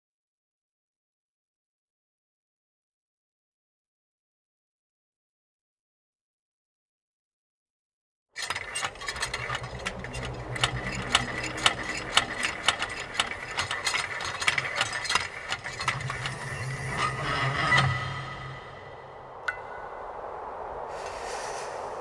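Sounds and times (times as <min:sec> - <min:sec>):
mechanical clicks and rattles: 0:08.4 - 0:18.0
machine humming: 0:08.6 - 0:19.4.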